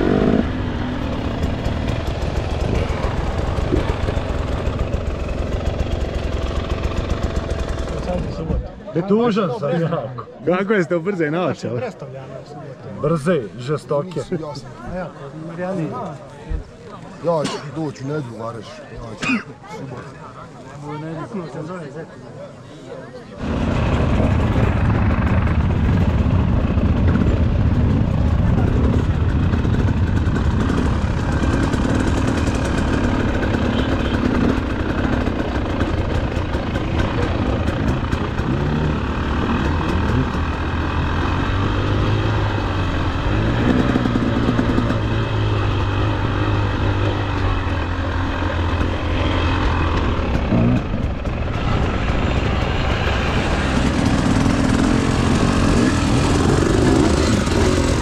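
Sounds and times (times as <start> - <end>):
motorcycle engine revving: 0.0 - 8.5, 23.4 - 58.0.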